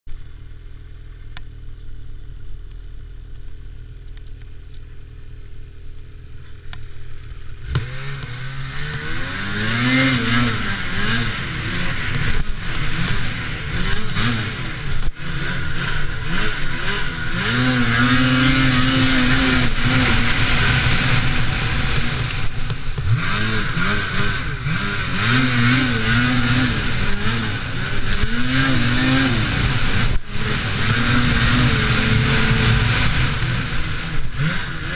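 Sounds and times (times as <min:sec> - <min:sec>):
snowmobile engine revving: 0:07.3 - 0:34.9
rushing noise: 0:08.6 - 0:34.9.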